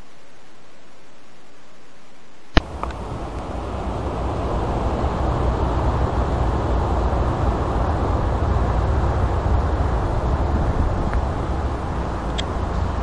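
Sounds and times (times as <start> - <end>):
steady low rumbling: 2.6 - 13.0.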